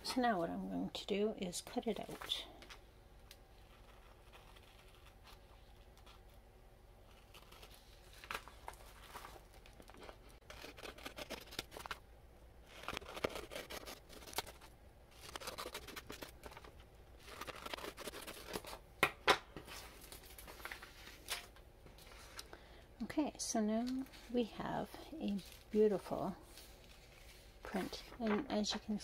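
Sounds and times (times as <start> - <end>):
paper rustling: 7.1 - 12.0, 12.6 - 18.8, 19.6 - 22.5, 24.9 - 29.0
scissors snipping paper: 10.4 - 12.0, 12.7 - 18.8.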